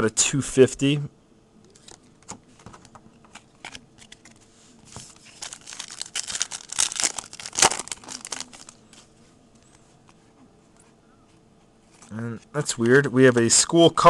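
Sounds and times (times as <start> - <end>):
foil wrapper crinkling: 3.5 - 9.1.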